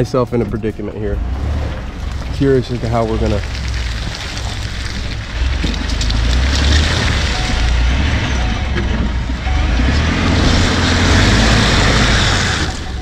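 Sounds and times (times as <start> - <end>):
truck engine running hard: 0.0 - 13.0
wheel spinning in mud: 1.6 - 13.0.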